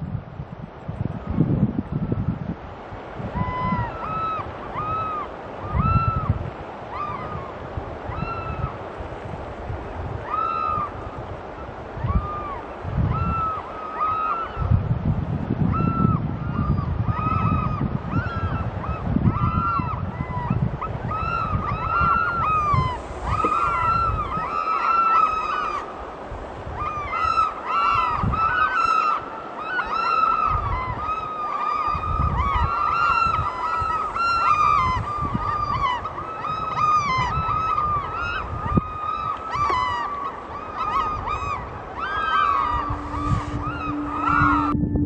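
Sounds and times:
oystercatchers piping calls: 26.8 - 44.8.

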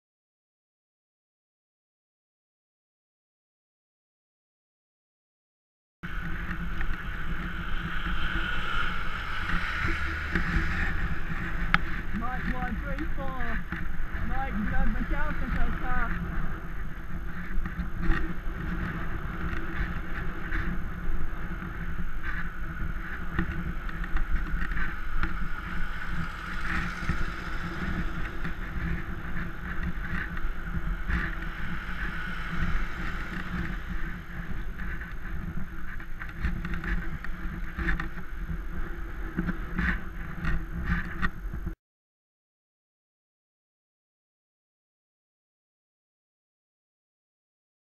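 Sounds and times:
bicycle road rumble: 6.0 - 41.8
wind: 6.0 - 41.8.

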